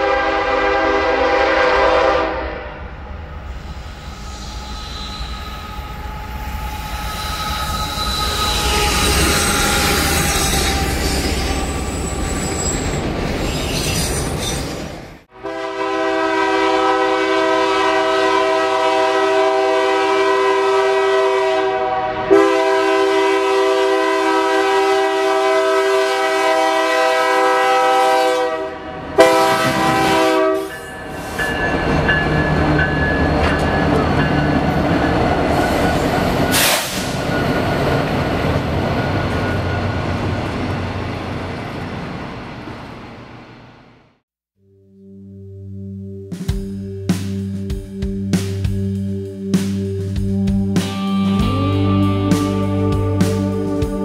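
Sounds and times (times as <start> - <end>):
locomotive air horn chord: 0.0 - 2.8, 15.3 - 30.8
freight train rolling past: 0.0 - 44.2.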